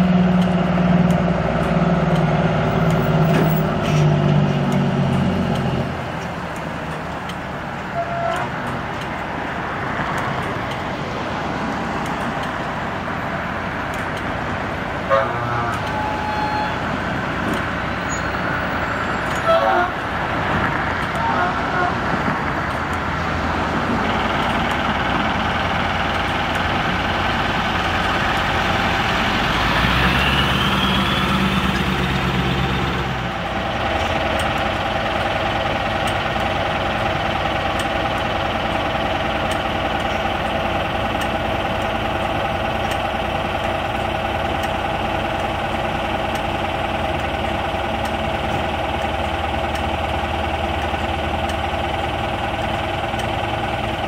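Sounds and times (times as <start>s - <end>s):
diesel truck engine idling: 16.8s - 54.0s.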